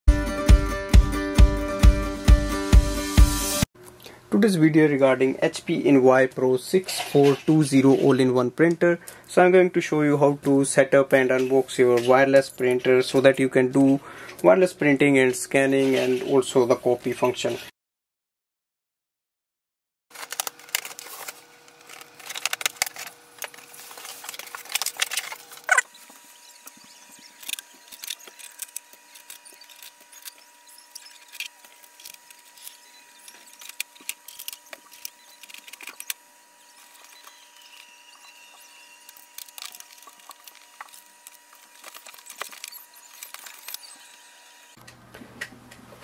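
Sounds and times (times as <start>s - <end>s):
packaging rustling: 20.1s - 44.0s
scissors cutting packing tape: 27.2s - 44.0s.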